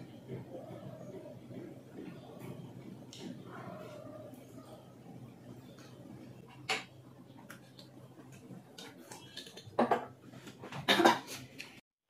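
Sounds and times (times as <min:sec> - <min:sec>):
steady low hum: 0:00.0 - 0:09.2
dishes and cutlery clinking: 0:08.8 - 0:11.4.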